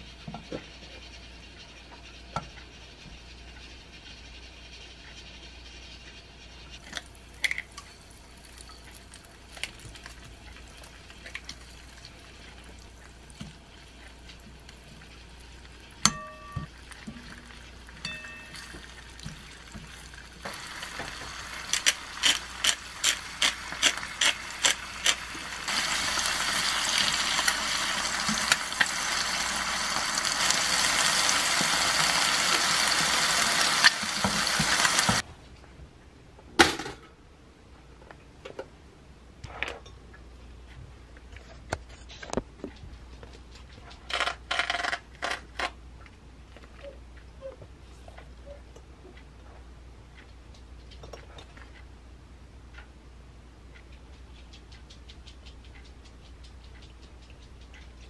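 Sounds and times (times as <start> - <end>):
eggs and bacon frying: 0.0 - 35.2
butter sizzling in frying pan: 6.8 - 35.2
metal tongs tapping: 16.0 - 19.4
pepper mill clicking: 20.8 - 29.4.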